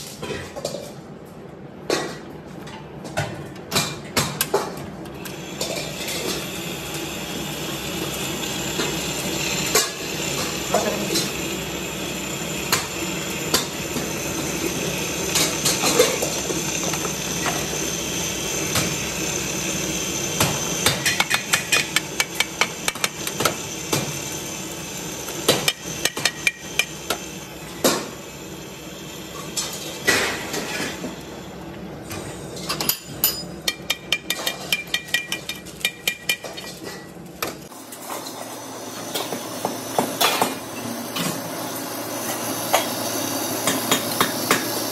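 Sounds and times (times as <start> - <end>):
steady machine hum: 3.6 - 44.9
chisel ticking and scraping on metal: 33.7 - 36.5.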